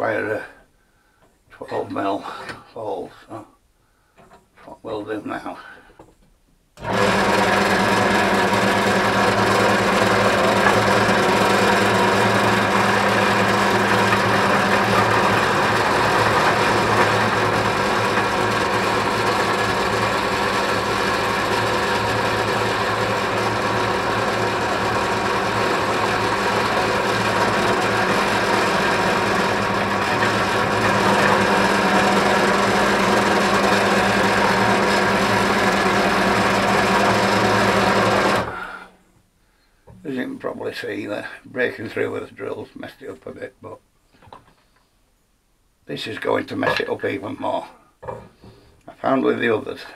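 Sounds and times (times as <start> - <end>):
drill press boring wood: 6.8 - 38.9.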